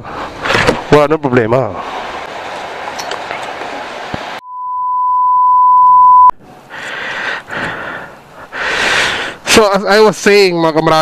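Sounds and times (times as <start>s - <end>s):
outdoor background noise: 0.0s - 4.4s, 6.3s - 11.0s
high steady bleep tone: 4.4s - 6.4s.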